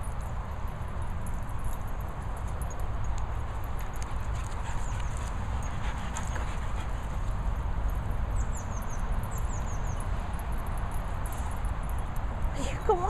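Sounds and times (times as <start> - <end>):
bird chirping: 8.3 - 10.6.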